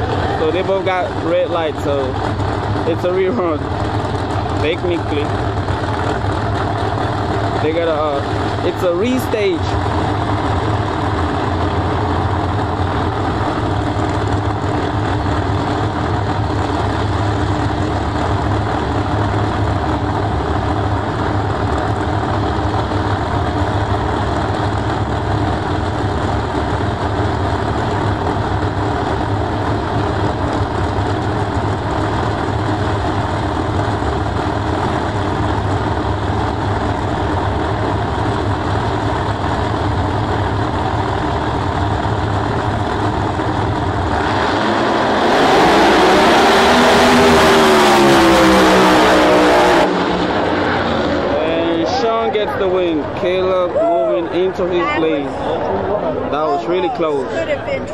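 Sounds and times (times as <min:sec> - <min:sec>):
race car engines idling: 0:00.0 - 0:57.9.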